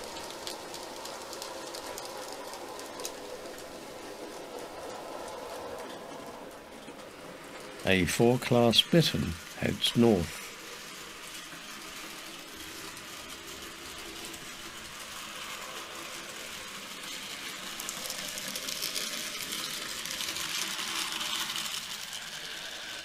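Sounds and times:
model train rattling on track: 0.0 - 23.0.

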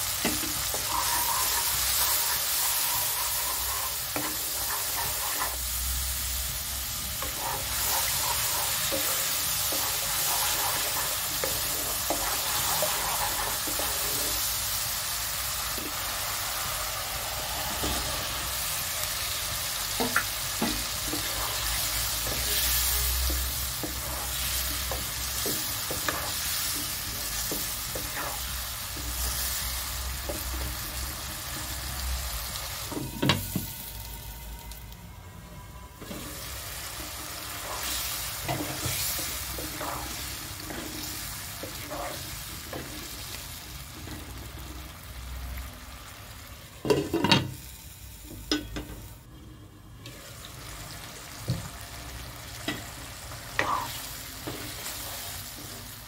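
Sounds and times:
paste sizzling in hot oil: 0.0 - 34.1, 36.0 - 46.3, 50.1 - 56.0
wooden spatula scraping wok: 0.1 - 6.0, 6.9 - 14.6, 20.0 - 33.0, 36.0 - 44.8, 53.5 - 56.0.

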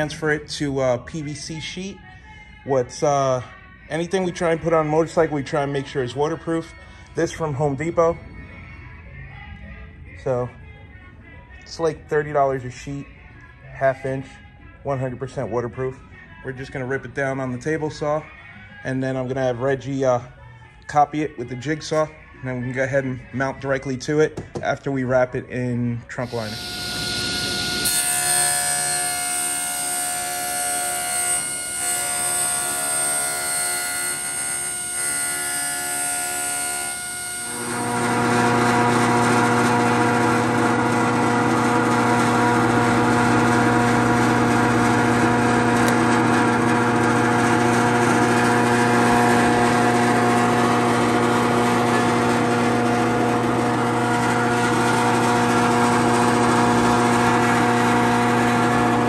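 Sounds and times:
table saw cutting plastic board: 26.2 - 59.0
drill press motor humming: 26.3 - 59.0.

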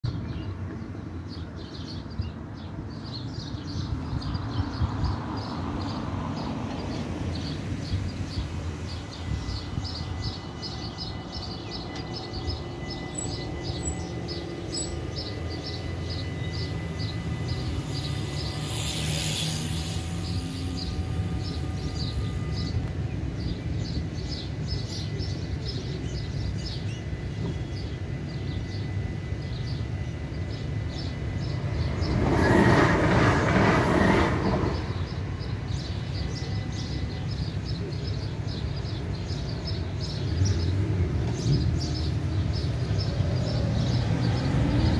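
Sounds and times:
low traffic rumble: 0.1 - 44.9
vehicle passing: 14.6 - 22.7, 31.0 - 35.9.

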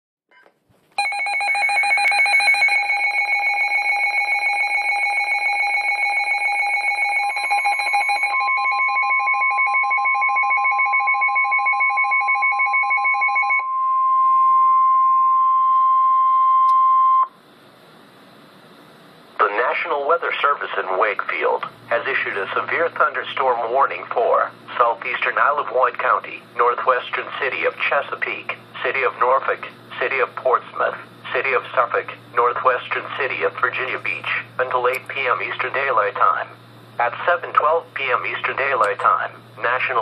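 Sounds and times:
pulsing alarm beeps: 1.0 - 17.4
steady warning tone: 1.0 - 18.7, 19.3 - 40.0
faint radio hiss: 17.3 - 40.0.

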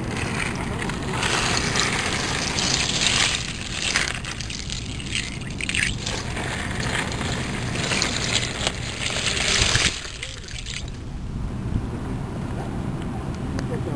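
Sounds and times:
plastic bag crinkling: 0.0 - 11.0
water sloshing: 0.0 - 11.1
low wind rumble: 0.0 - 13.9.

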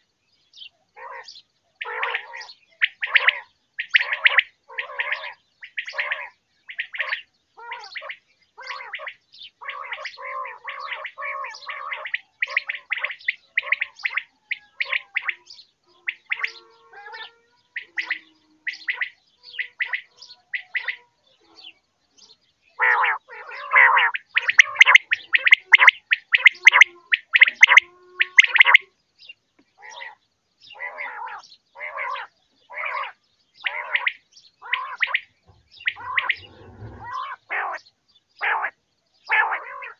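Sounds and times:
quail chirping calls: 0.0 - 39.9.

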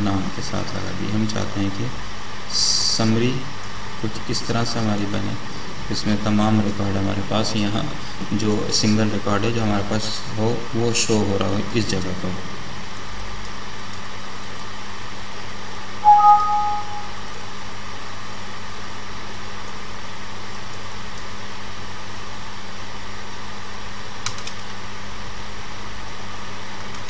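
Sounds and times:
steady hiss with low hum: 0.0 - 27.0
short electronic beep: 16.0 - 17.2.

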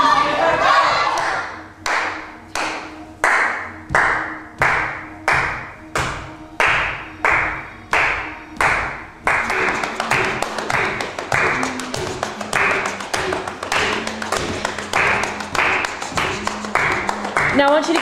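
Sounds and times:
hand percussion beat: 8.6 - 18.0.

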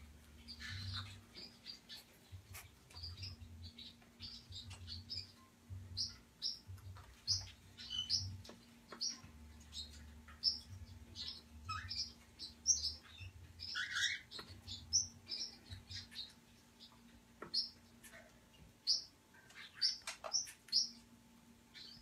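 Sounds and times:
parrots chirping: 0.4 - 21.0.

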